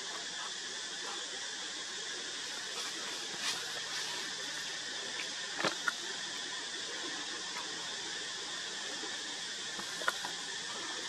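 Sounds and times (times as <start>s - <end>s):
high-pitched forest hiss: 0.0s - 11.0s.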